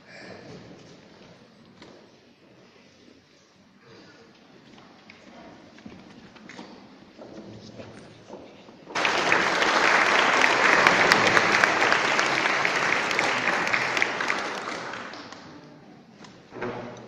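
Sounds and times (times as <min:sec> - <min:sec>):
audience applauding: 0:08.9 - 0:15.6.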